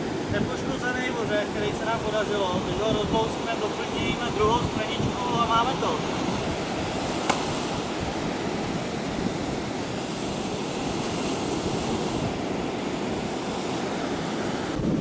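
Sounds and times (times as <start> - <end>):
surf breaking on beach: 0.0 - 15.0
wind on microphone: 0.0 - 15.0
sharp click: 7.2 - 7.6.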